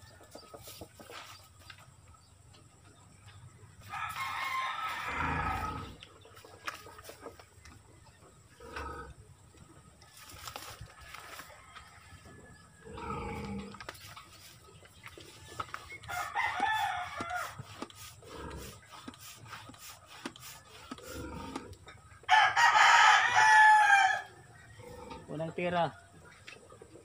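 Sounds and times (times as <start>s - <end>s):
rooster crowing: 3.8s - 6.0s, 16.1s - 17.6s, 22.3s - 24.4s.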